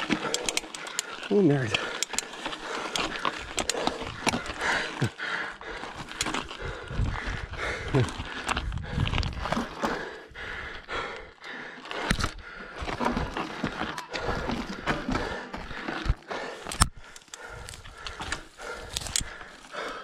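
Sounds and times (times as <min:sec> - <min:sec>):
bike frame rattling and knocking: 0:00.0 - 0:05.1, 0:11.9 - 0:19.3.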